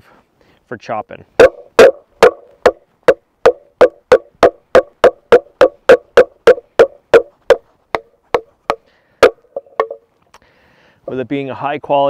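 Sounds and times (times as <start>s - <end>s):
wooden stick striking knife spine: 1.4s - 10.0s.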